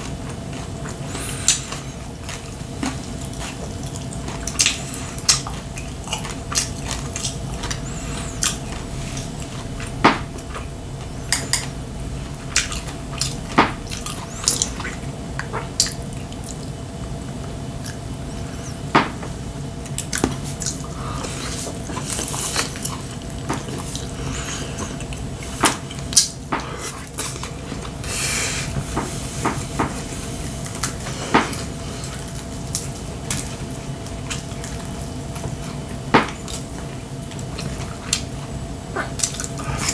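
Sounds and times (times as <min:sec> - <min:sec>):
wet chewing: 0:00.0 - 0:16.8.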